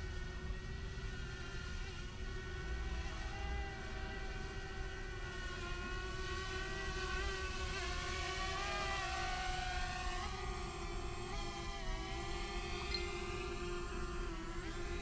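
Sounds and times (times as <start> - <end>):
drone propellers whining: 7.2 - 15.0.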